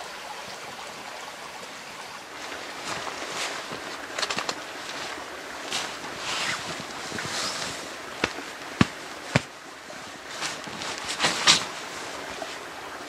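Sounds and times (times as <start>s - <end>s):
clothing and ground sheet rustling: 2.3s - 12.8s.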